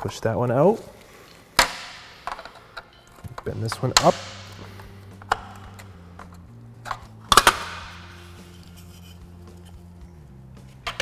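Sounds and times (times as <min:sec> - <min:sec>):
plastic tabs snapping: 0:01.6 - 0:08.7.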